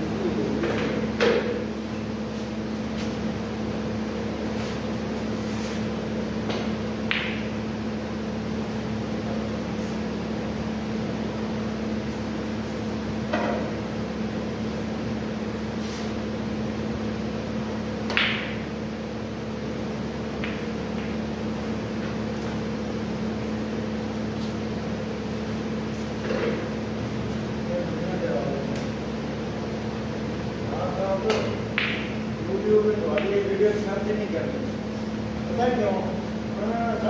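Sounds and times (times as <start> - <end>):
electrical hum: 0.0 - 37.0
snooker balls clicking: 7.1 - 7.6, 31.3 - 32.2.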